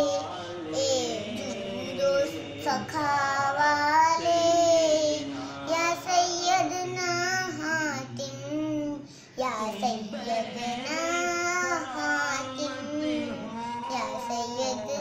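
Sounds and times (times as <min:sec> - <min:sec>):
girl singing slow chant: 0:00.0 - 0:15.0.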